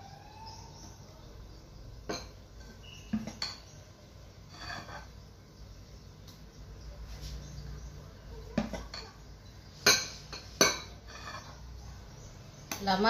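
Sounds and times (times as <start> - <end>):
metal spoon clinking on bowls: 2.0 - 3.8, 4.5 - 5.2, 8.4 - 11.8.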